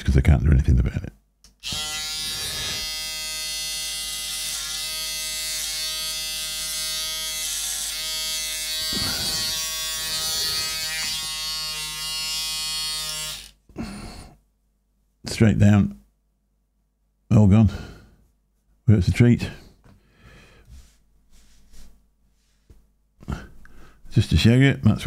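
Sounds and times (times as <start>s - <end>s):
electric hair trimmer buzzing: 1.6s - 13.6s.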